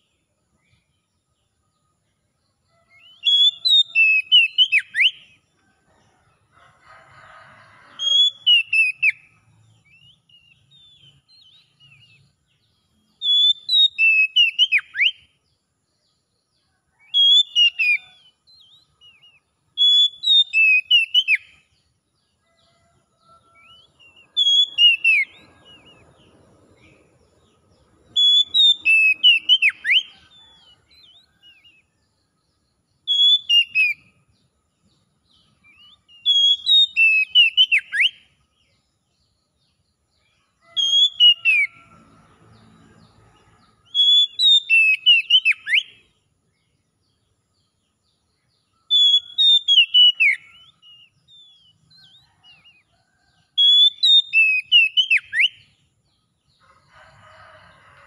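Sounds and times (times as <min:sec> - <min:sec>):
bird singing whistled notes: 0:02.7 - 0:05.4, 0:07.9 - 0:15.4, 0:16.9 - 0:21.7, 0:23.4 - 0:27.0, 0:28.1 - 0:31.9, 0:32.6 - 0:34.3, 0:34.9 - 0:39.9, 0:40.6 - 0:41.8, 0:43.9 - 0:46.1, 0:48.2 - 0:55.8.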